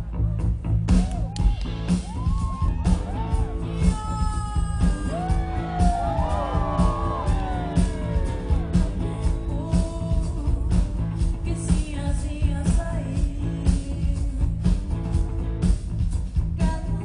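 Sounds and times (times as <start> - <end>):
live band with drums and bass: 0.0 - 17.0
woman singing wordless notes: 9.2 - 14.6.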